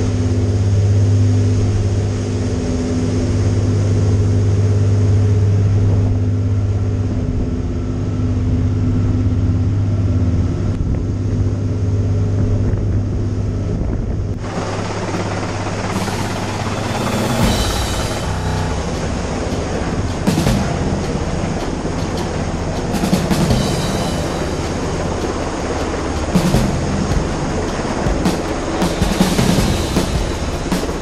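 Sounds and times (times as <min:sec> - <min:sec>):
ferry engines droning: 0:00.0 - 0:31.0
helicopter hovering overhead: 0:00.0 - 0:31.0
wind: 0:00.0 - 0:31.0
rushing water: 0:14.4 - 0:31.0.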